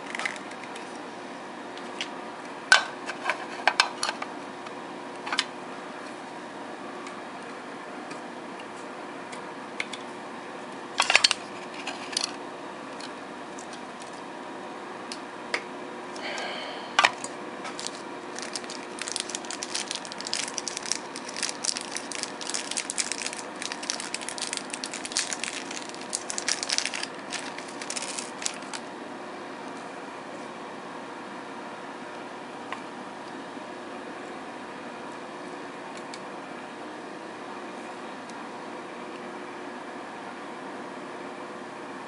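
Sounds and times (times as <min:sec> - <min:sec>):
plastic packaging crinkling: 0:00.0 - 0:01.0, 0:17.6 - 0:28.9.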